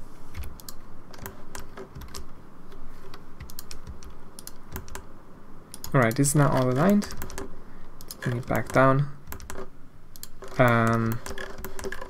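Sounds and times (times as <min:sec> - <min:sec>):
keyboard keys clicking: 0:00.4 - 0:02.3, 0:03.0 - 0:05.1, 0:05.7 - 0:12.0
mouse buttons clicking: 0:00.4 - 0:05.1.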